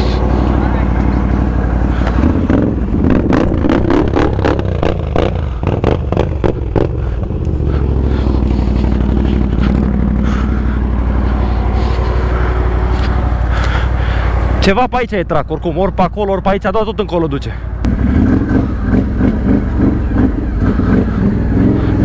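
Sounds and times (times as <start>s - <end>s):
atv engine running: 0.0s - 22.0s.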